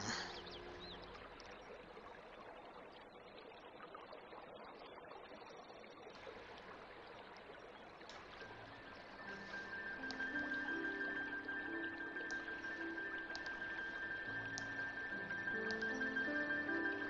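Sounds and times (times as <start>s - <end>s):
faint steady hiss: 5.6s - 17.0s.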